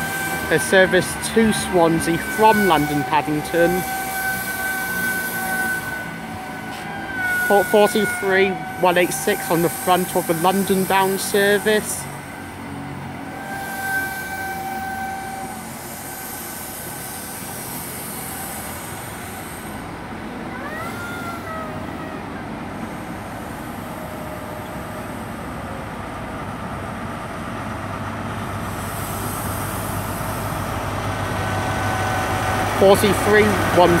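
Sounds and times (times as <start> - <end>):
high squealing tones: 0.0 - 19.8
diesel train engine drone: 0.0 - 34.0
rail and wheel noise: 0.0 - 34.0.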